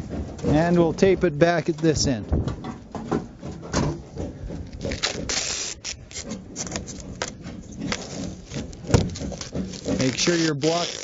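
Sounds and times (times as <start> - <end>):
tape scraping and rustling: 2.6 - 11.0
tape ripping off roll: 4.8 - 11.0.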